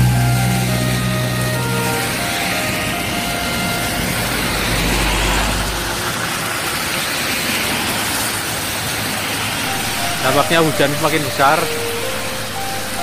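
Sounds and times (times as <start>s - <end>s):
vehicle engine rumble: 0.0s - 8.5s
heavy rain falling: 0.0s - 13.0s
tyres on wet road: 0.0s - 13.0s.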